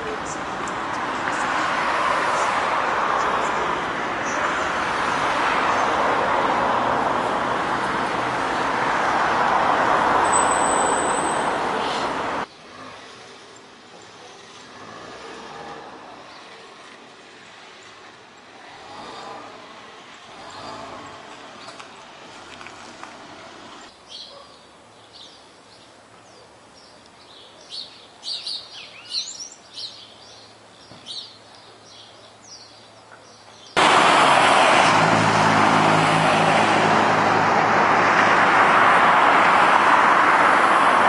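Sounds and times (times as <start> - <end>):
passing cars rushing: 0.0 - 23.9, 33.8 - 41.0
quiet street ambience: 0.0 - 41.0
high squeal: 10.2 - 11.6.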